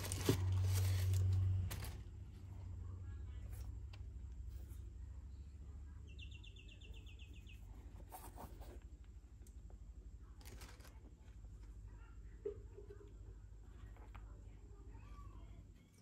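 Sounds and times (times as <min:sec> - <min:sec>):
tissue paper rustling: 0:00.0 - 0:02.0
steady low hum: 0:00.0 - 0:16.0.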